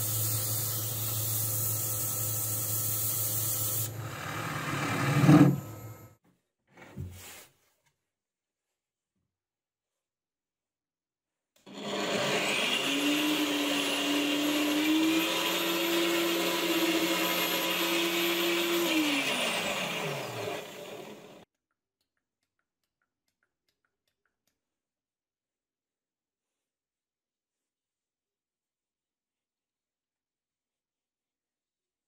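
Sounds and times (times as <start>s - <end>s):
angle grinder whine: 11.7s - 21.4s.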